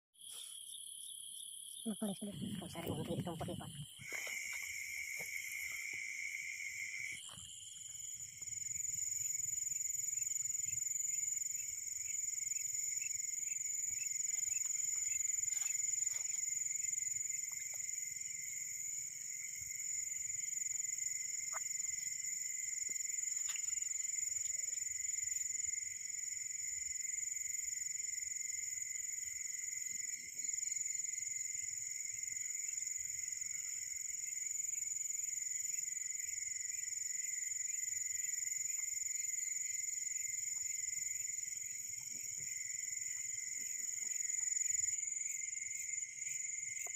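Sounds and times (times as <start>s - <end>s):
insect trills: 0.2s - 46.9s.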